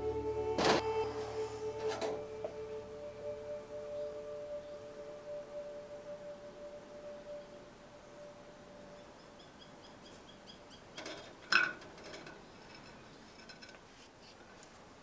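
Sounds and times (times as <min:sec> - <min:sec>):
faint steady tone: 0:00.0 - 0:13.7
faint high chirps: 0:00.9 - 0:10.9.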